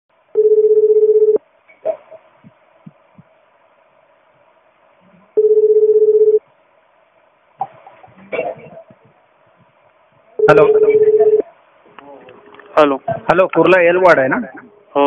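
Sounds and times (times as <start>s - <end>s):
telephone ringback tone: 0.4s - 1.4s, 5.4s - 6.4s, 10.4s - 11.4s.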